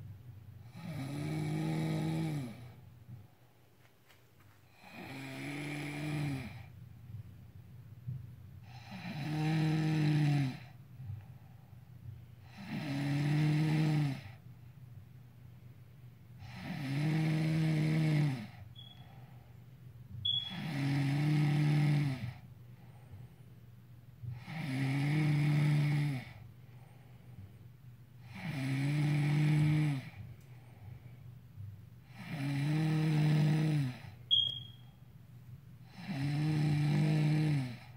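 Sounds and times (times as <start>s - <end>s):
quiet breathing: 0.0s - 7.3s, 8.0s - 34.8s, 35.8s - 37.9s
woman snoring: 0.6s - 2.8s, 4.7s - 6.7s, 8.6s - 10.8s, 12.4s - 14.4s, 16.4s - 19.1s, 20.3s - 22.4s, 24.3s - 26.4s, 28.2s - 30.2s, 32.1s - 34.5s, 35.8s - 37.9s.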